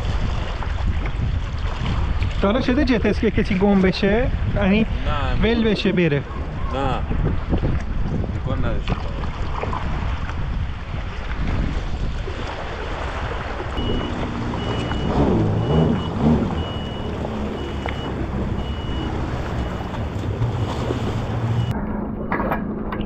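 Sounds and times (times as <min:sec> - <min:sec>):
jet ski engine revving: 0:13.6 - 0:21.7
electronic beeper: 0:13.8 - 0:20.8.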